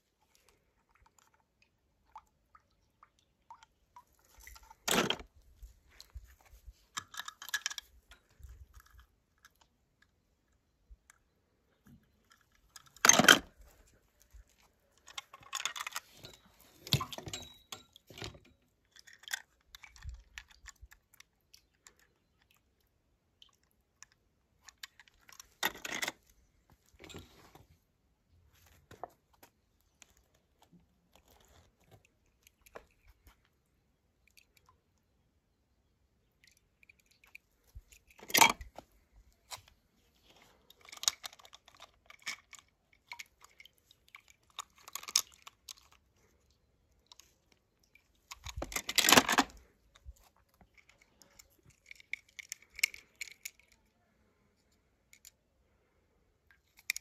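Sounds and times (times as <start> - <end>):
toy cars clicking and rattling: 7.0 - 9.7, 15.0 - 17.6, 18.7 - 22.5, 40.2 - 46.4, 47.0 - 53.9, 56.6 - 57.0.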